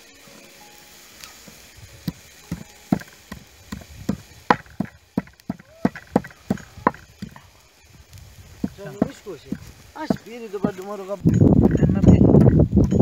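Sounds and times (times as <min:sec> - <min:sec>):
wooden pestle pounding on board: 0:02.1 - 0:07.4, 0:08.6 - 0:12.7.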